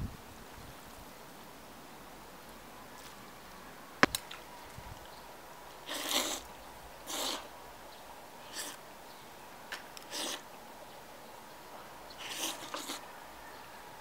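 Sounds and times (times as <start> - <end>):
slurping noodles: 5.9 - 6.5, 7.1 - 7.5, 10.1 - 10.4, 12.2 - 13.1.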